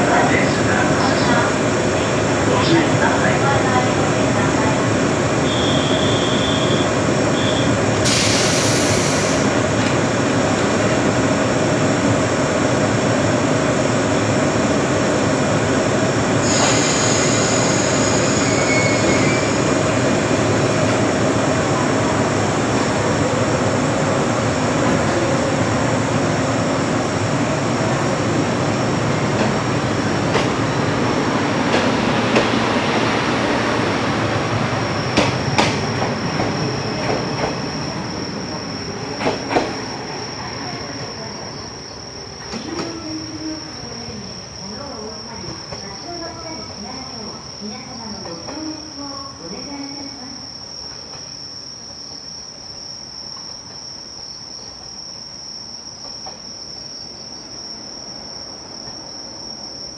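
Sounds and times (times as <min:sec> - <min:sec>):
train machinery humming: 0:00.0 - 0:52.0
short hisses: 0:08.1 - 0:09.5.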